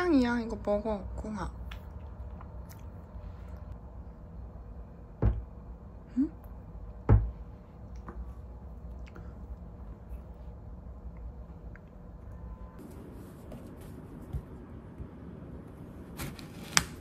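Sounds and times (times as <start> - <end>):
cat knocking cabinet door: 5.2 - 5.5.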